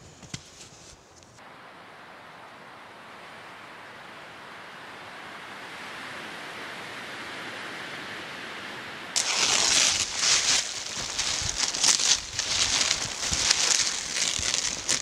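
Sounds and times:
steady hiss: 9.2 - 15.0
tarp crinkling over snow: 9.2 - 15.0.

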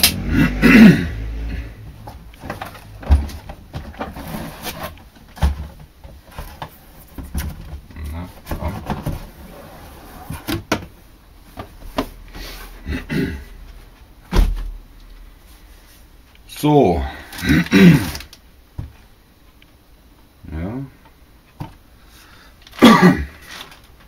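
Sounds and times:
cardboard scraping: 2.4 - 7.4, 8.0 - 10.6.

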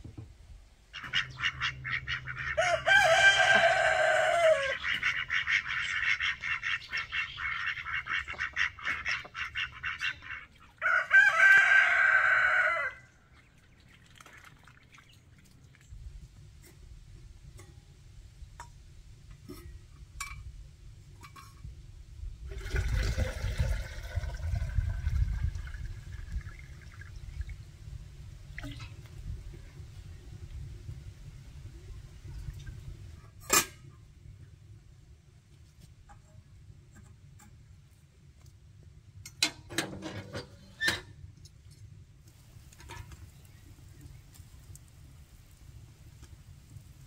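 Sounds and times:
rapid rattling calls: 1.0 - 2.6, 4.6 - 10.7
rooster crowing: 2.6 - 4.8, 10.8 - 13.1.

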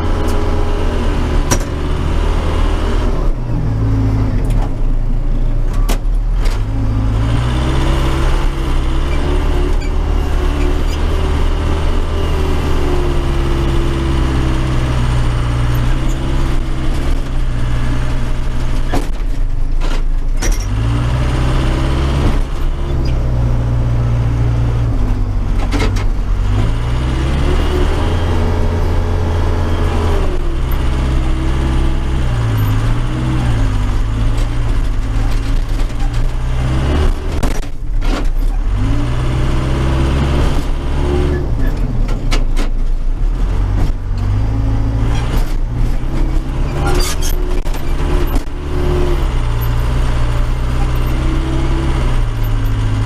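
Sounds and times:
diesel engine running under load: 0.0 - 53.0.

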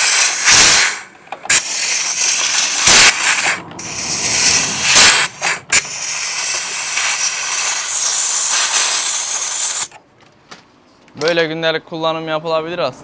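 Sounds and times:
compressed air hissing: 0.0 - 10.0.

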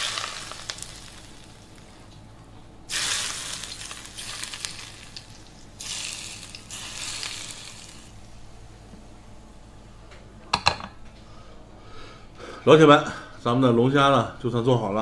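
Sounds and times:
hot oil sizzling: 0.0 - 2.0, 2.9 - 8.2.

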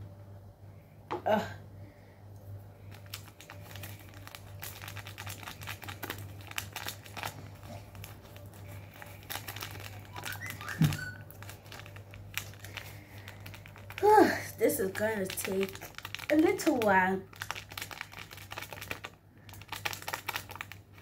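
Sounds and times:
foil sachet crinkling: 2.8 - 21.0
person speaking: 14.0 - 17.3.

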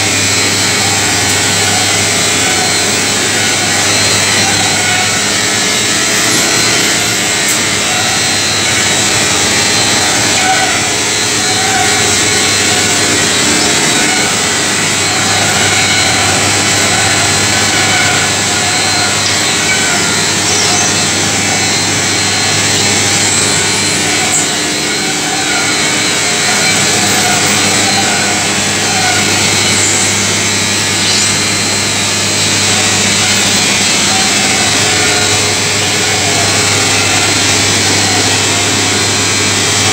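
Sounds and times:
dryer machine running: 0.0 - 39.9.

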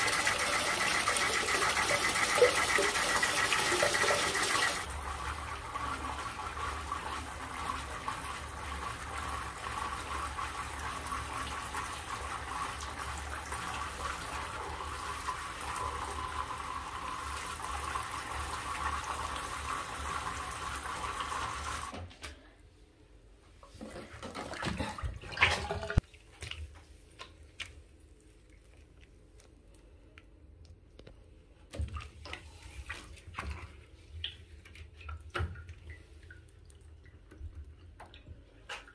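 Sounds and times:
water running into balloon: 0.0 - 5.0
faint water drips: 24.8 - 38.9.

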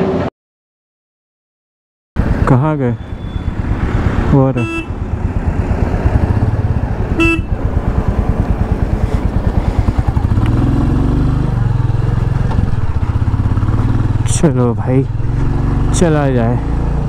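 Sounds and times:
horn beep: 3.0 - 3.6, 4.5 - 5.0, 7.2 - 7.6
motorcycle engine thumping: 4.6 - 11.0, 11.6 - 15.9.

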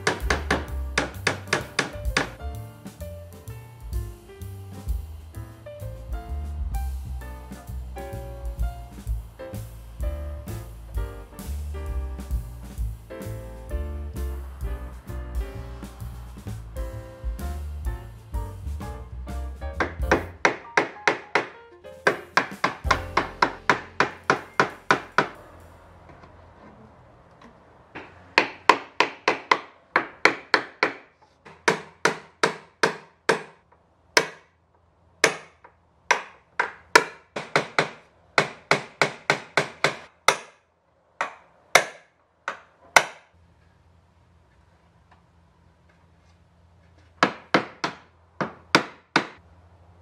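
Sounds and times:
hammer driving nails into wood: 0.0 - 2.4, 19.8 - 25.4, 28.0 - 34.5, 35.2 - 40.6, 41.2 - 43.3, 47.2 - 49.4.

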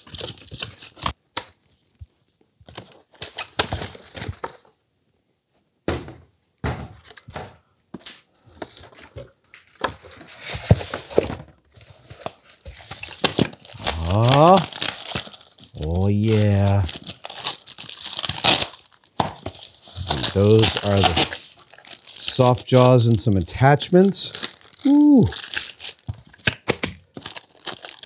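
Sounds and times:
cardboard thunks on workbench: 5.9 - 7.6
cardboard scraping and rustling: 9.9 - 13.8.

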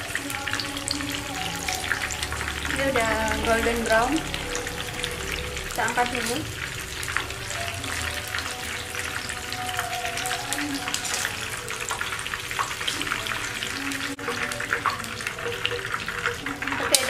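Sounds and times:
fritters deep-frying in hot oil: 0.0 - 17.0.

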